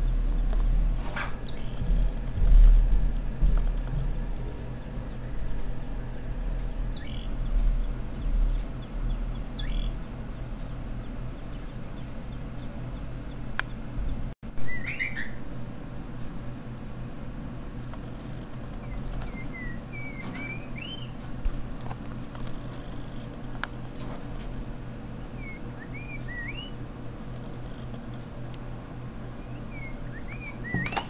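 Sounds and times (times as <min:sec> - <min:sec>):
low rumble: 0:00.0 - 0:14.8
recorded bird chirps: 0:00.0 - 0:15.5, 0:18.0 - 0:21.2, 0:25.2 - 0:26.8, 0:29.2 - 0:31.0.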